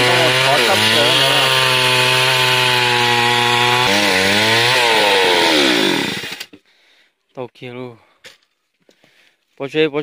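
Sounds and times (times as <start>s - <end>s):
chainsaw cutting timber: 0.0s - 6.6s.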